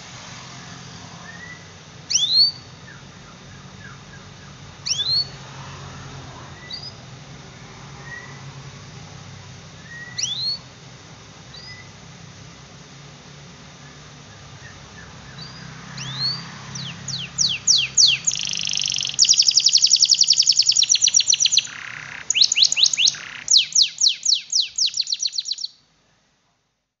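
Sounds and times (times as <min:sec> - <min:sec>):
canary singing: 0:00.6 - 0:05.4, 0:06.5 - 0:07.1, 0:08.0 - 0:08.6, 0:09.8 - 0:10.7, 0:11.5 - 0:12.0, 0:13.8 - 0:25.8.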